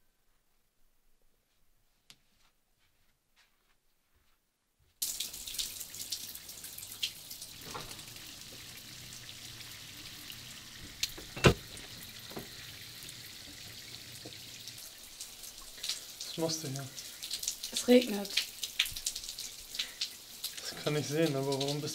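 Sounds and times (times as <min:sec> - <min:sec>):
steady rain falling: 0:05.0 - 0:21.9.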